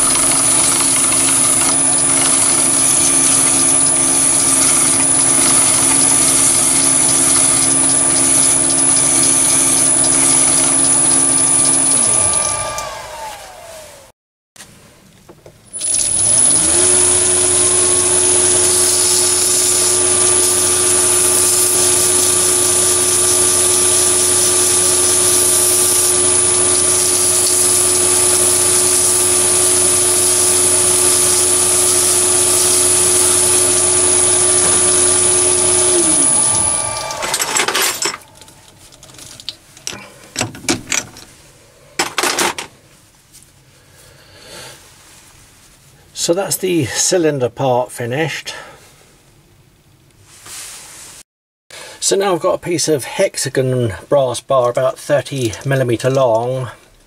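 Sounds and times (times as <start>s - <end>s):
lathe motor whining: 0.0s - 14.1s, 15.7s - 38.7s.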